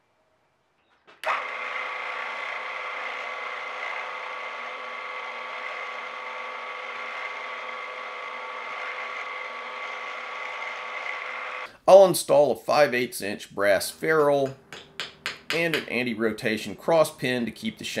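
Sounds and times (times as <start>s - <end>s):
drill press whining: 1.0s - 11.7s
drill boring into wood: 1.2s - 11.7s.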